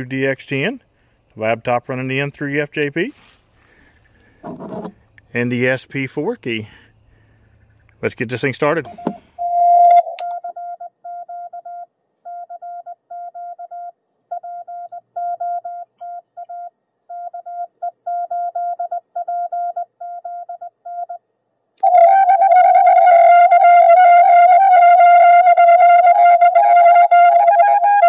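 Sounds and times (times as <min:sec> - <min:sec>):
morse code beeps: 0:08.8 - 0:21.2
sustained tone with overtones: 0:08.9 - 0:11.7.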